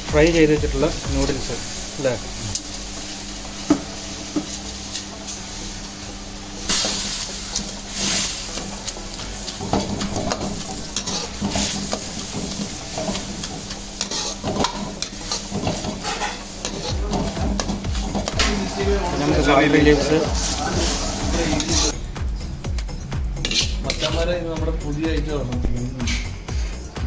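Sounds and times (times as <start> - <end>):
noodles sizzling in a wok: 0.0 - 22.0
ladle scraping and clinking on wok: 6.7 - 18.8, 23.4 - 24.2.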